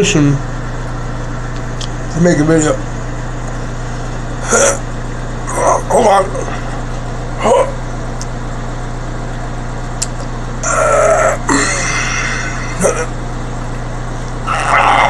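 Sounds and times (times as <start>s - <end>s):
man's throaty vocal sound: 4.4s - 4.8s, 7.4s - 7.8s, 10.6s - 13.2s, 14.5s - 15.0s
low hum: 10.0s - 15.0s.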